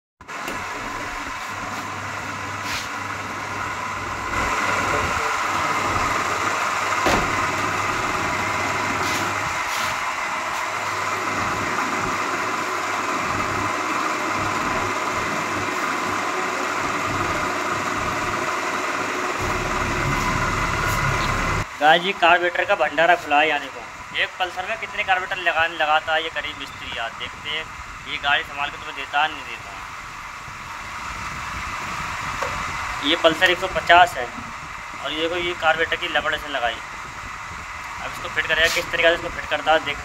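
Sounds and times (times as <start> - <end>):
engine-like drone: 0.2 - 40.0.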